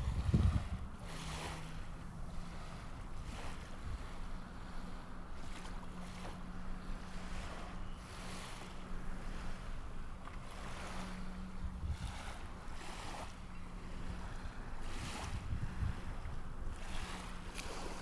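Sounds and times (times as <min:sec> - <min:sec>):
wind on microphone: 0:00.0 - 0:06.3, 0:10.5 - 0:18.0
boat motor humming: 0:00.0 - 0:18.0
water noise: 0:00.0 - 0:18.0.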